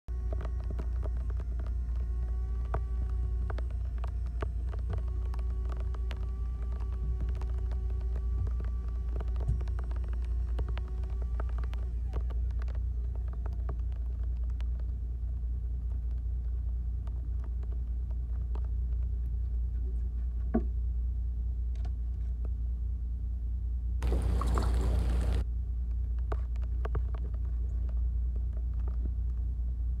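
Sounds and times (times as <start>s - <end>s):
low steady rumble: 0.0s - 30.0s
electric reel motor whine: 0.1s - 13.8s, 24.0s - 25.4s
small clicks: 0.1s - 19.6s.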